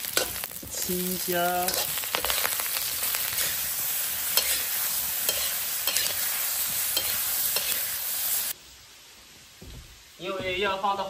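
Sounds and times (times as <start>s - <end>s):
food sizzling in a wok: 0.0s - 11.0s
metal spatula scraping a pan: 1.6s - 7.9s.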